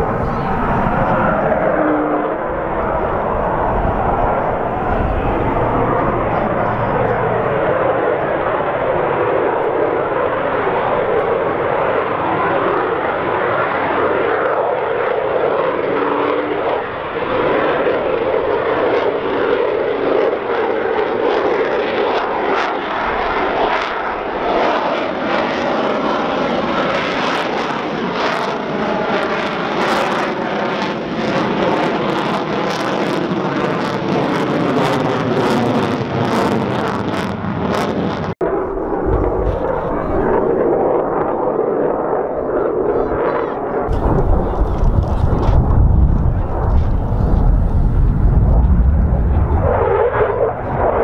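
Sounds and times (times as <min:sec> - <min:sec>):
jet engine passing overhead: 0:00.0 - 0:51.0
afterburner crackle: 0:43.9 - 0:51.0.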